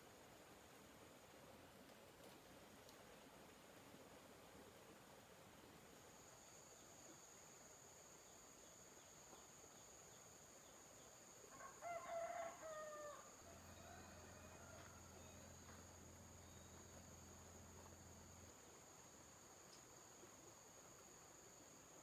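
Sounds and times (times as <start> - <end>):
rooster crowing: 11.5 - 15.6.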